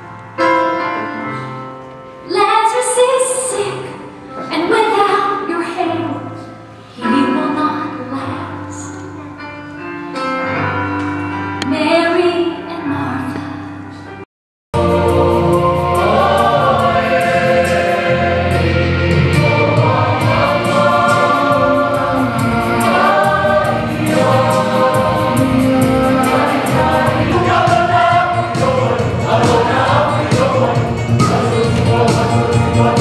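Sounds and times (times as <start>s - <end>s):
choir singing gospel in harmony: 14.8s - 33.0s.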